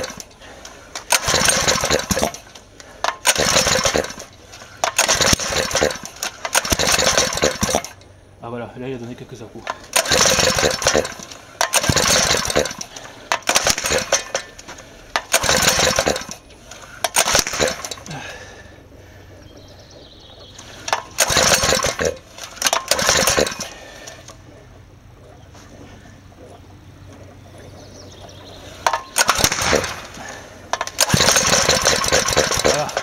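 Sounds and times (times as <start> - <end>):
pull-start rope pulls: 0.0 - 8.0, 9.1 - 19.0, 20.5 - 24.6, 28.6 - 33.0
small engine cranking roughly: 0.0 - 8.0, 9.6 - 18.7, 20.6 - 24.5, 28.6 - 33.0.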